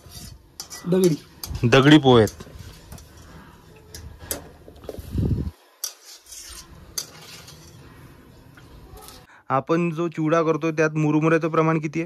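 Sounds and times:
frying oil sizzling: 0:00.0 - 0:09.3
metal spoon scraping a pan: 0:00.0 - 0:09.3.

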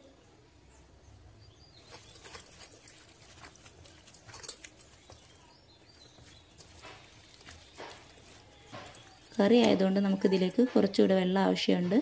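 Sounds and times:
hand squishing wet meat: 0:01.7 - 0:10.6.

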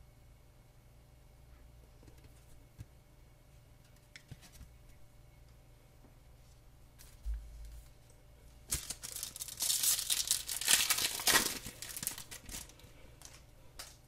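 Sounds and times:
wrapper tearing and crinkling: 0:08.7 - 0:14.0.

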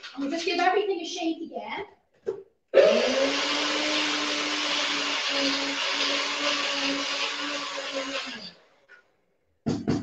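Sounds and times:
high-speed blender grinding nuts: 0:02.8 - 0:08.8.

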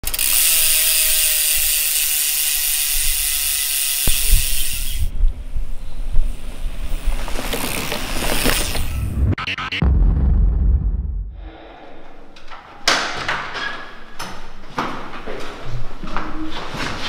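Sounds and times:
bike rolling over grass: 0:06.8 - 0:09.0.

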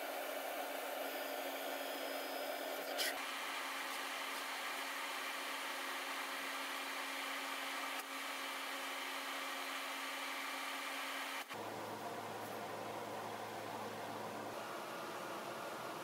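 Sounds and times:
laser cutter hissing: 0:00.0 - 0:07.1
low steady hum: 0:11.5 - 0:16.0.

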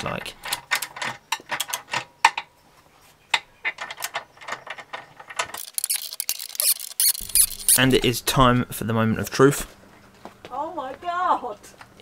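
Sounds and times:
socket ratchet clicking: 0:05.6 - 0:07.9.

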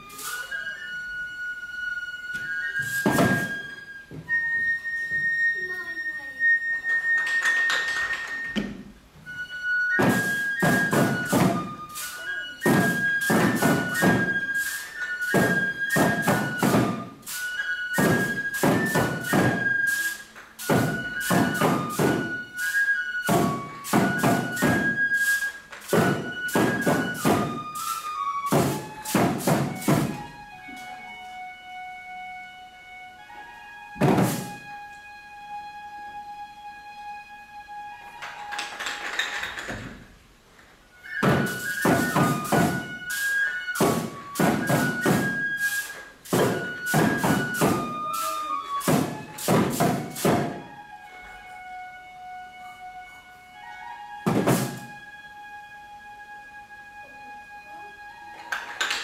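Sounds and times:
bamboo flute melody: 0:00.0 - 0:59.0
small drums beaten: 0:02.2 - 0:05.4, 0:06.9 - 0:31.0, 0:33.9 - 0:35.2, 0:40.9 - 0:51.0, 0:54.2 - 0:55.0.

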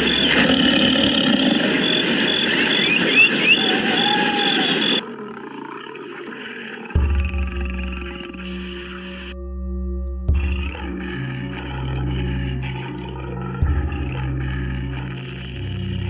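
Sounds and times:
tiger roar: 0:00.0 - 0:01.9, 0:04.2 - 0:09.4
rapid insect chirping: 0:00.0 - 0:09.4, 0:10.4 - 0:16.0
short rising bird chirps: 0:01.6 - 0:05.0.

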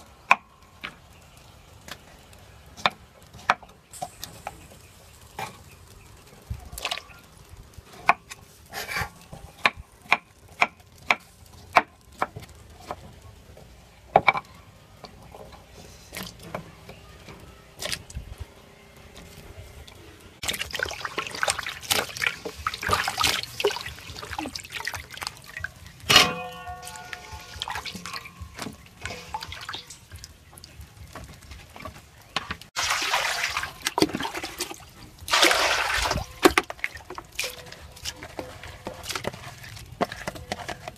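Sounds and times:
water pouring into steel bowl: 0:20.4 - 0:25.7, 0:26.5 - 0:30.1, 0:32.8 - 0:39.2
ringing metal clank: 0:26.1 - 0:28.5.

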